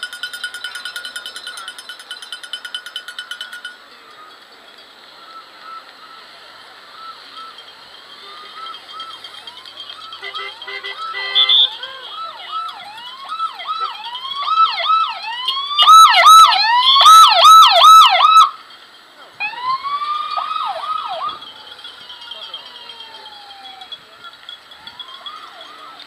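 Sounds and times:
police sirens yelping: 3.8 - 26.0
siren wailing: 5.6 - 18.6, 19.4 - 24.0.

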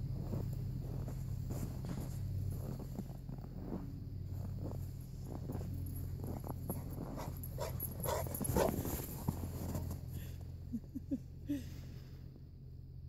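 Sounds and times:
footsteps crunching in snow: 0.0 - 10.1.

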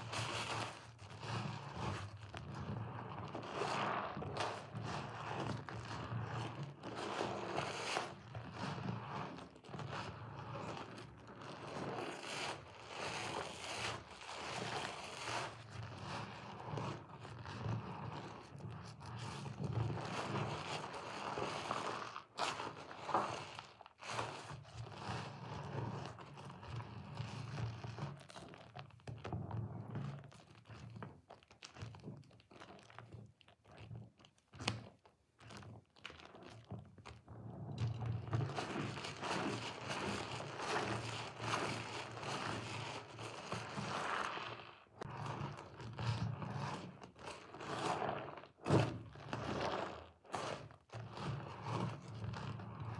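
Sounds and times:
sponge squishing in lather: 0.0 - 29.5, 30.1 - 52.9.

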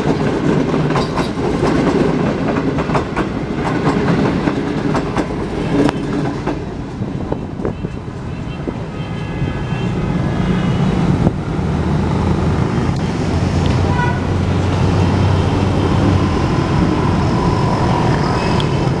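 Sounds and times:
vehicle engines humming: 5.6 - 19.0.

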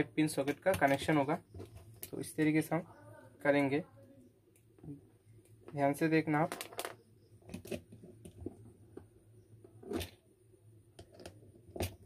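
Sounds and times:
clicks and taps of wire: 0.4 - 2.2
handling noises: 0.4 - 2.6, 4.7 - 10.2.

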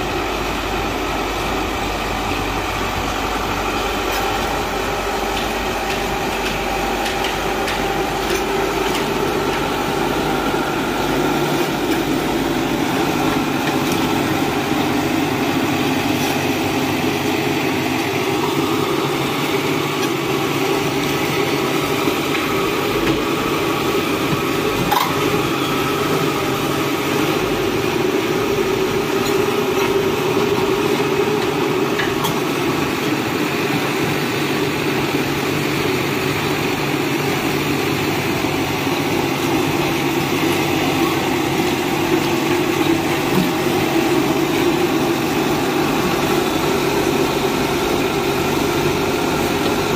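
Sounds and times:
excavator diesel engine under load: 0.0 - 49.9.

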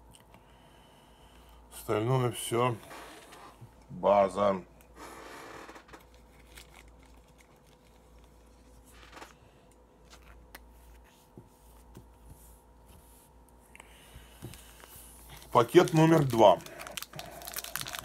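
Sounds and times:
trading cards rustling: 5.9 - 9.4, 14.4 - 18.0.

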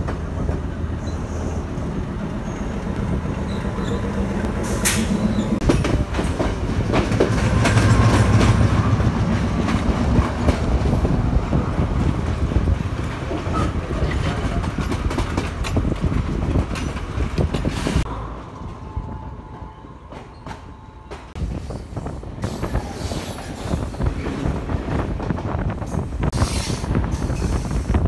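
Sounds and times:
train low rumble: 0.0 - 28.0
wheels clacking over rail joints: 3.4 - 18.1.

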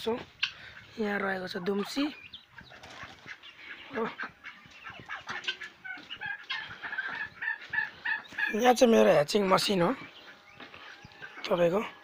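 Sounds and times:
chickens clucking: 0.0 - 12.0
short high chicken calls: 4.0 - 8.6.

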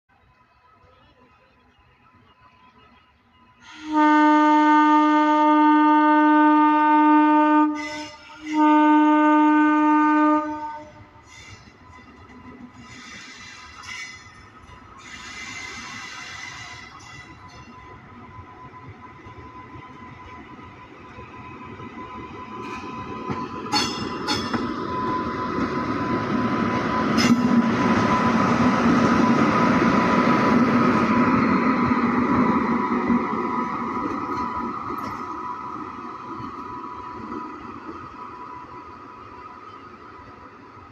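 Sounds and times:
electric locomotive passing: 0.1 - 40.9
locomotive air horn blasts: 3.6 - 11.2.

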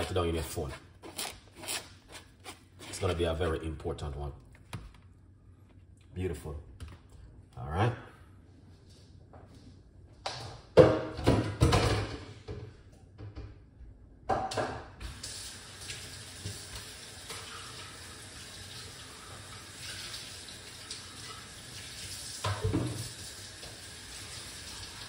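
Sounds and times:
tap water running into sink: 15.0 - 25.0.

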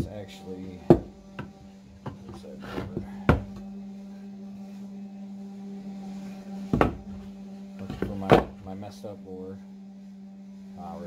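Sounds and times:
steady low hum: 0.0 - 11.0
wooden boards knocking: 0.9 - 2.4.

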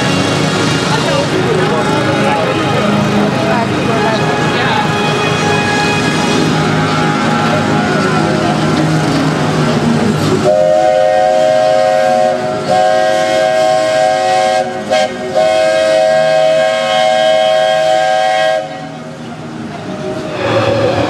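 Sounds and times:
steam train chime whistle: 10.4 - 19.0.

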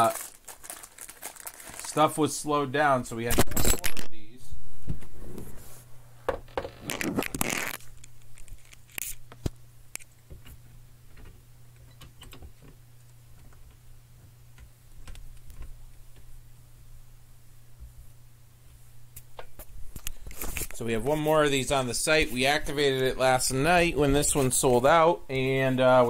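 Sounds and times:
low electrical hum: 0.0 - 26.0
objects rustling and scraping: 4.8 - 10.6, 19.5 - 23.4.

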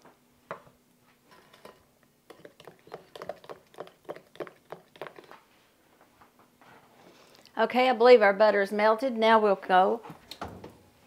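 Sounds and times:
spoon stirring batter in glass bowl: 1.3 - 5.4.

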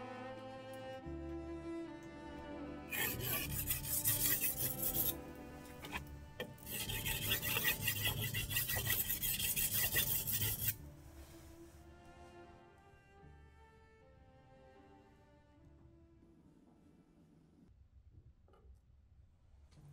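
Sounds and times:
knife scraping on whetstone: 2.9 - 10.8.

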